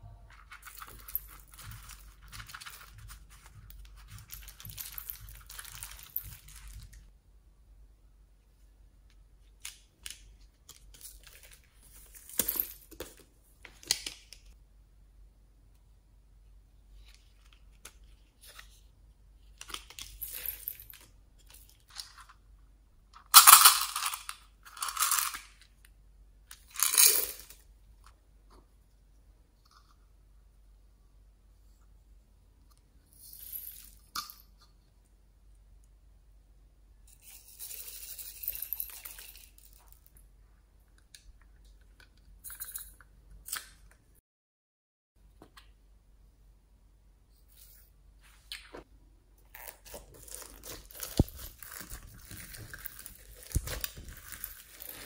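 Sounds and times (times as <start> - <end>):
crinkly rustles: 49.6 - 55.0.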